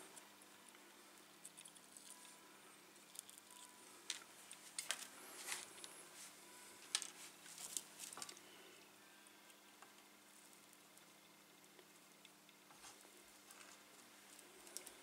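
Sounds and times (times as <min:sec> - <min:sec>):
faint steady hum: 0:00.0 - 0:15.0
small tools clicking and rustling: 0:06.9 - 0:08.4.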